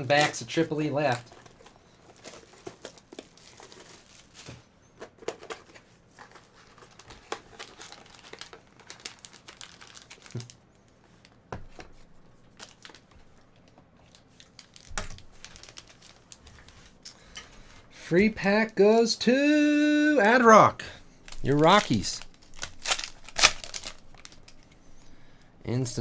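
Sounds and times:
wrappers crinkling and tearing: 0.0 - 4.6, 5.6 - 10.6, 12.5 - 17.0, 21.2 - 24.7.

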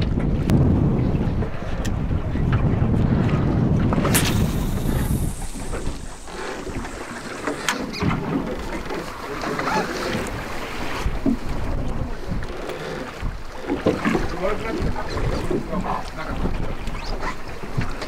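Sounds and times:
choppy sea water washing: 0.0 - 18.0
wind on microphone: 0.0 - 18.0
short sharp sounds: 4.0 - 8.0.

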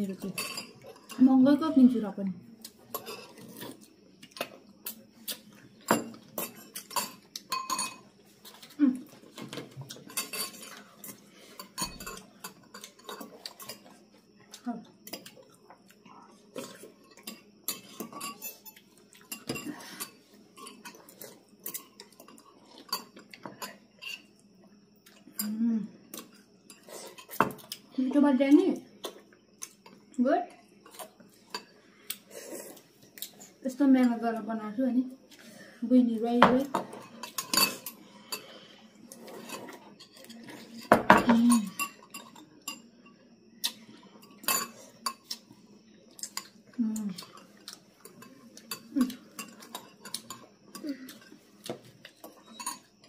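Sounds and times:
cutlery clinking on ceramic bowls: 0.2 - 1.3, 5.8 - 13.9, 16.6 - 24.3, 36.4 - 38.5, 39.3 - 43.2, 44.2 - 45.4, 47.2 - 50.5, 51.1 - 53.0
spoons clinking on ceramic bowls: 5.9 - 8.1, 52.2 - 52.9.

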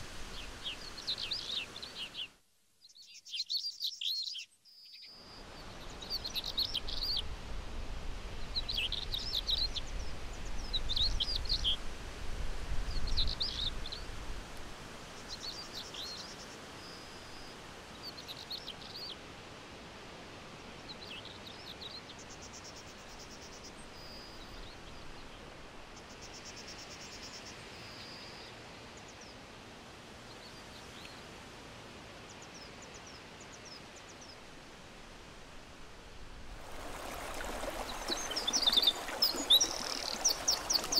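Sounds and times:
songbirds chirping: 0.0 - 7.3, 20.6 - 35.2, 36.5 - 40.9
faint steady hiss: 0.0 - 40.9.

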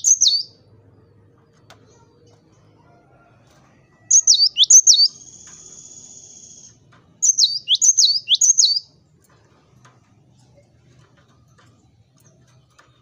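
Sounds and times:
faint buzzing bird trill: 0.0 - 0.6, 4.1 - 8.9.

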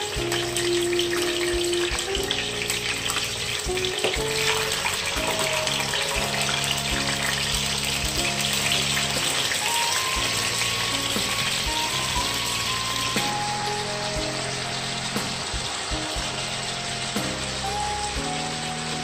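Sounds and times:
background music: 0.0 - 19.0
meat sizzling in hot oil: 0.0 - 19.0.

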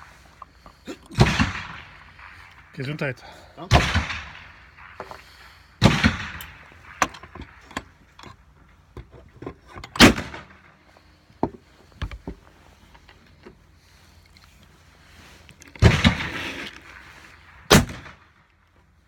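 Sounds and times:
loud echoing gunshots: 1.2 - 7.6, 10.0 - 10.7, 15.8 - 16.5, 17.4 - 18.4.

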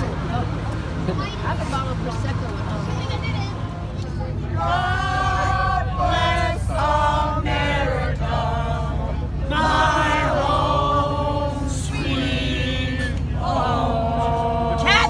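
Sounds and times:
steady low hum: 0.0 - 15.0
group singing: 4.6 - 15.0.

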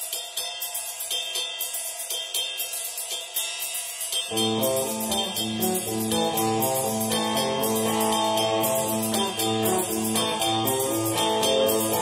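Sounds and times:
cymbal ticks: 0.0 - 12.0
electric guitar riff: 4.3 - 12.0.

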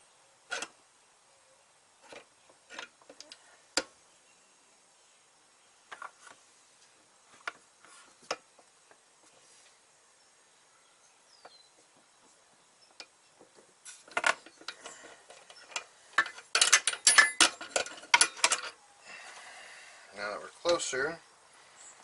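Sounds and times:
metal clicks and rattles of tube bender: 13.0 - 18.8.

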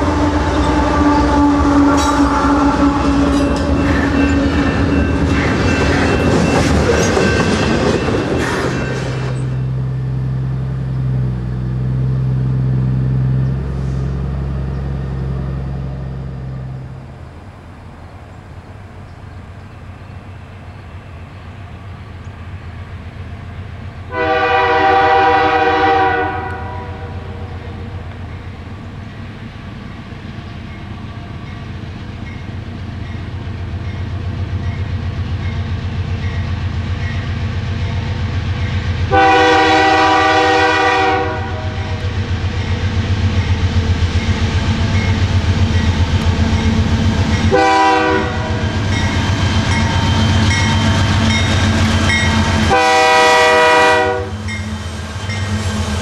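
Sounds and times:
locomotive air horn blasts: 0.0 - 3.7, 24.1 - 27.9, 39.1 - 42.0, 47.5 - 48.8, 52.6 - 54.6
train wheels clacking on rails: 0.0 - 11.8, 41.9 - 56.0.

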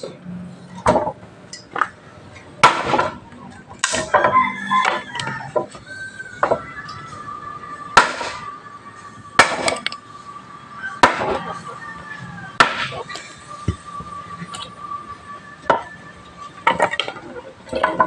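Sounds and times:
wood being chopped: 2.6 - 3.2, 3.8 - 4.3, 8.0 - 8.4, 9.4 - 9.9, 11.0 - 11.4, 12.6 - 13.0.

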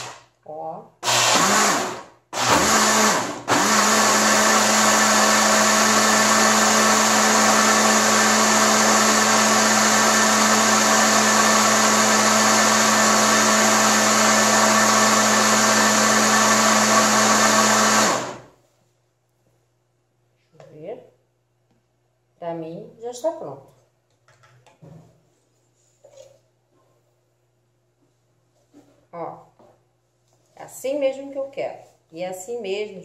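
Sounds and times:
kitchen blender motor running: 0.0 - 0.2, 1.0 - 18.5.

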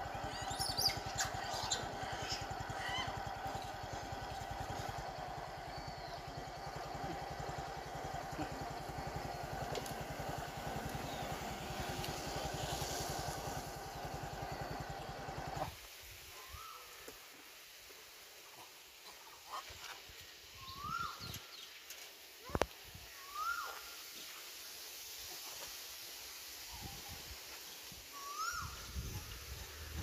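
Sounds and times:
motorcycle engine idling: 0.0 - 15.8, 28.9 - 30.0.

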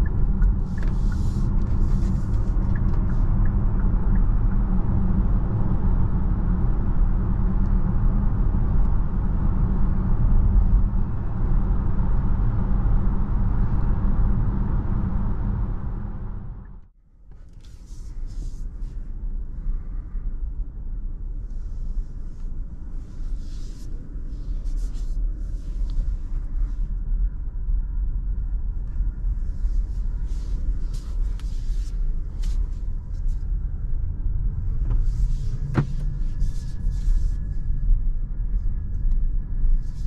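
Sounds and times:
tyre and road rumble: 29.6 - 40.0.

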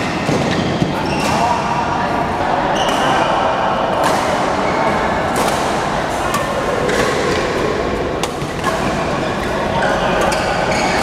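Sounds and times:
din of busy sports hall: 0.0 - 11.0
rackets hitting shuttlecock: 3.9 - 11.0.

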